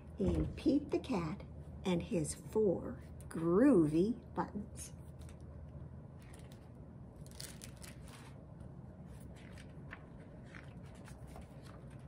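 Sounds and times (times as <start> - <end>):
paper pages rustling: 6.2 - 12.0.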